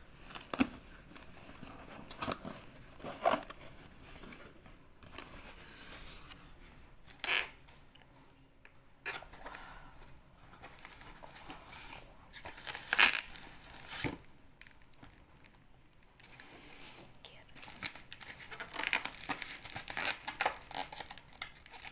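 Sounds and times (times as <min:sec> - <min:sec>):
bubble wrap crinkling: 0:10.5 - 0:21.9.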